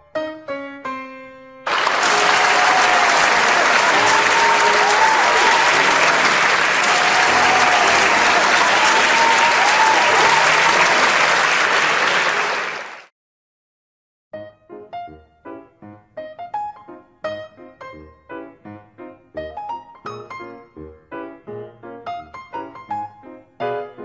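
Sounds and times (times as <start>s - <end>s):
piano music: 0.0s - 10.3s, 14.3s - 24.0s
crowd applauding: 1.7s - 13.1s
crowd cheering: 1.7s - 13.1s.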